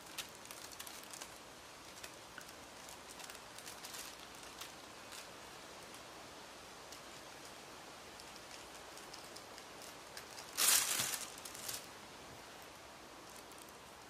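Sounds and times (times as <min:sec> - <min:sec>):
tissue paper rustling: 0:00.0 - 0:05.3, 0:08.5 - 0:12.0
wind-blown leaves rustling: 0:00.0 - 0:14.0.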